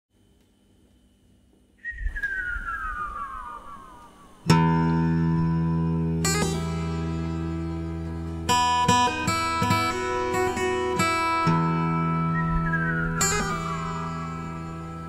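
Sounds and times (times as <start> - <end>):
guitar note sliding down: 1.9 - 15.0
guitar chord strummed: 4.5 - 15.0.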